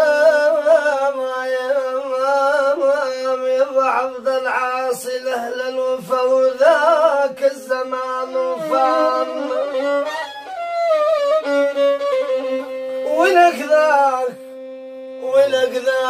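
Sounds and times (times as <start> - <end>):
violin solo melody: 6.9 - 16.0.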